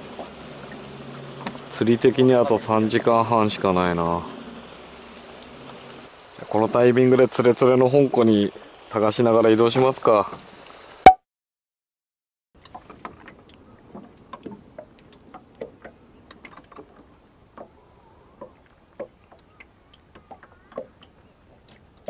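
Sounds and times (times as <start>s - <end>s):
light clicks and taps on boat: 1.4s - 3.1s, 12.6s - 22.0s.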